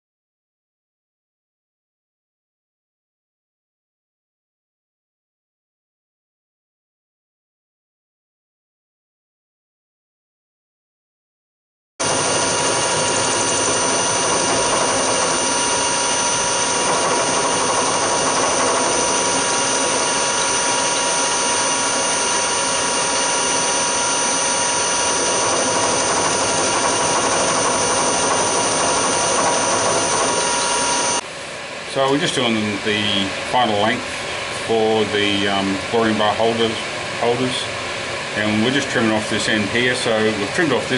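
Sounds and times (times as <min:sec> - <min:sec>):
milling machine whining: 0:12.0 - 0:40.9.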